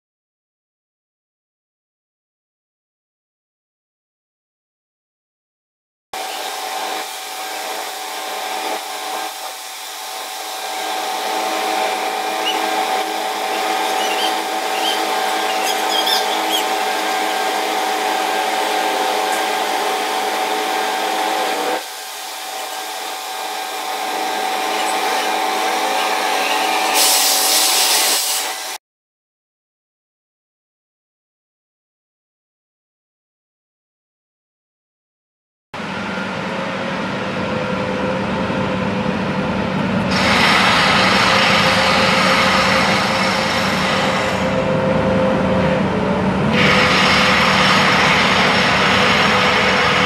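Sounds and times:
construction machinery whine: 6.2s - 28.8s, 35.8s - 50.0s.

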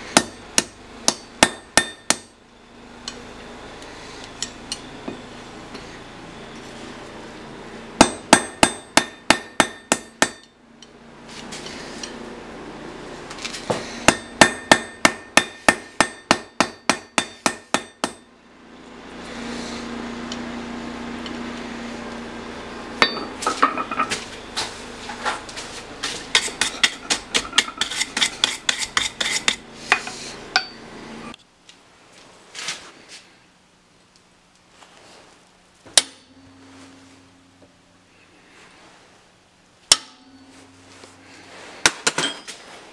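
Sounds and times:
hammer striking metal on anvil: 0.2s - 2.3s, 8.0s - 10.6s, 14.1s - 18.3s, 23.0s - 24.2s, 26.3s - 30.9s, 36.0s - 36.6s, 39.9s - 40.8s.

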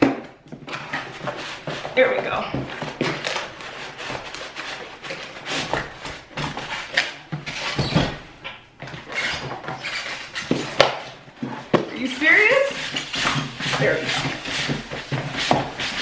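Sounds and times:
cardboard box rustling and scraping: 11.6s - 16.0s.

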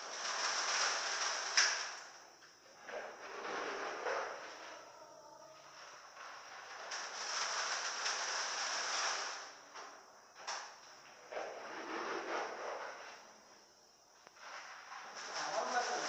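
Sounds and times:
filter media pouring hiss: 0.0s - 2.5s, 6.0s - 9.8s, 14.2s - 16.0s.

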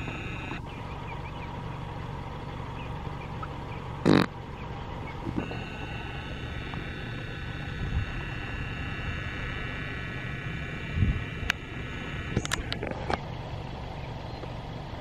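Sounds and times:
distant engine rumble: 0.0s - 15.0s
high steady whine: 0.0s - 15.0s
sharp clicks: 5.3s - 13.3s.

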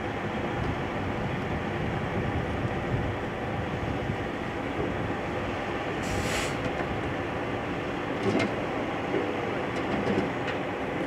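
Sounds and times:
heavy vehicle engine rumbling: 0.0s - 11.0s
short hiss: 6.0s - 6.6s.

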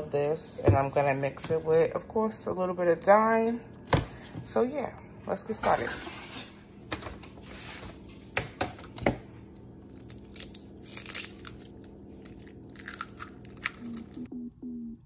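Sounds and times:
shells crackling apart: 9.9s - 14.3s.

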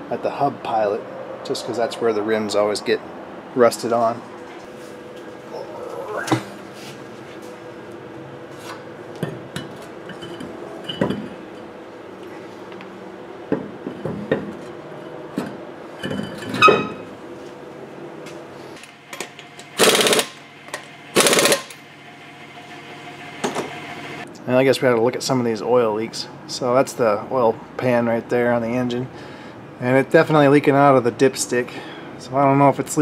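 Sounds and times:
impact wrench running: 18.8s - 24.2s.

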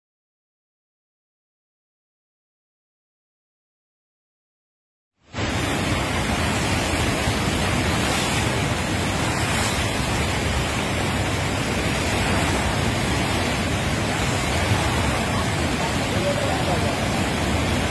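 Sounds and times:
turbulent water rushing: 5.3s - 17.9s.

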